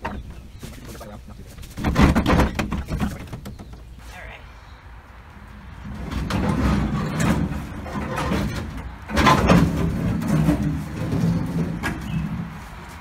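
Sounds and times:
metal scraping and creaking: 5.4 - 13.0.

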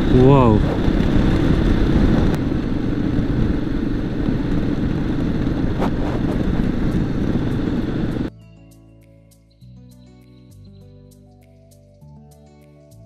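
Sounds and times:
motorcycle engine cruising: 0.0 - 8.3
wind noise on microphone: 0.0 - 8.3.

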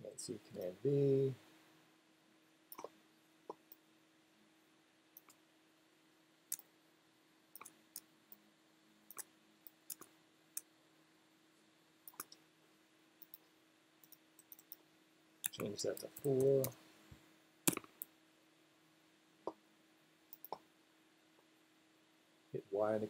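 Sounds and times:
faint steady hum: 0.0 - 23.0
mouse and keyboard clicks: 2.7 - 3.8, 7.6 - 8.1, 9.1 - 10.7, 12.1 - 12.4, 14.0 - 14.8, 15.4 - 16.8, 17.7 - 18.1, 20.3 - 20.6.

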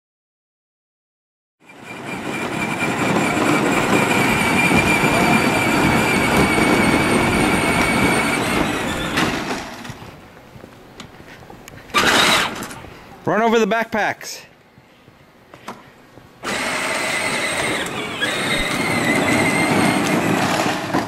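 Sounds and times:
electric motor whine: 1.7 - 10.0, 16.4 - 20.9
plastic wheels rumbling on asphalt: 1.7 - 12.8, 16.4 - 21.0.

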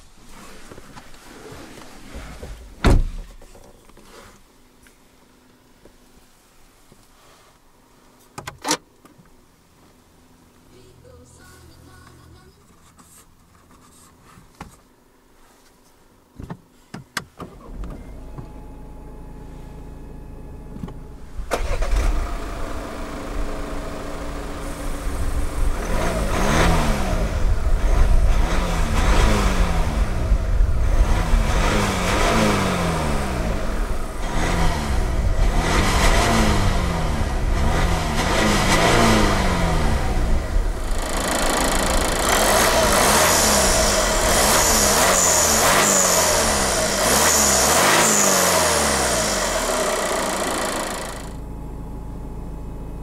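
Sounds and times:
diesel engine starting and idling: 17.4 - 53.0
low hum: 17.8 - 31.5, 48.9 - 53.0
engine revving: 21.5 - 51.5.

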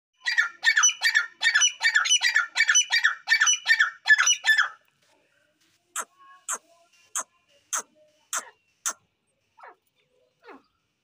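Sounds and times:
bird harsh high calls: 0.2 - 4.8, 6.0 - 9.8.

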